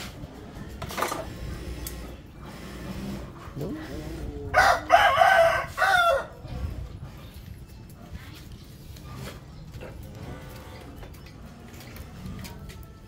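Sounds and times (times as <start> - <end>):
rooster crowing: 4.5 - 6.4.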